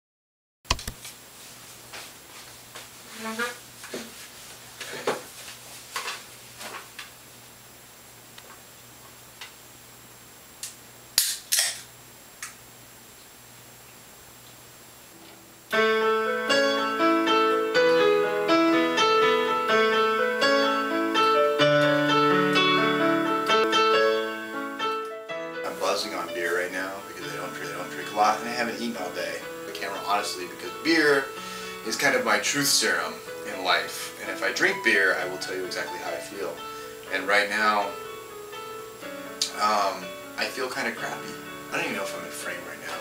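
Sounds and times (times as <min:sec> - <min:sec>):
electronic keyboard playing chords: 0:15.1 - 0:43.0.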